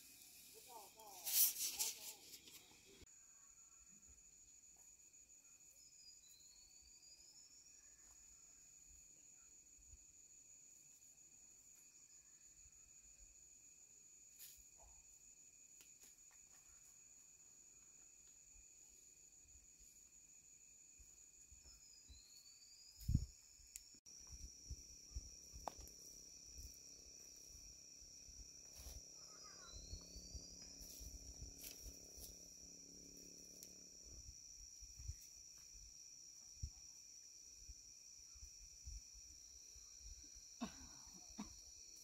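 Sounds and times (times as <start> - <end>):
insects chirring: 0.0 - 42.0.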